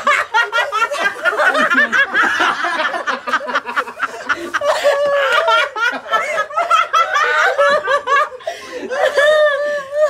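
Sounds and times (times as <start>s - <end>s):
people laughing: 0.0s - 10.0s.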